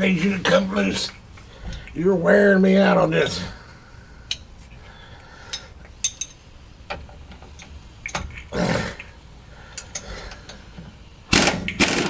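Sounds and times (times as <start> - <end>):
metal clinks: 5.5 - 6.5
impact wrench burst: 11.3 - 12.0.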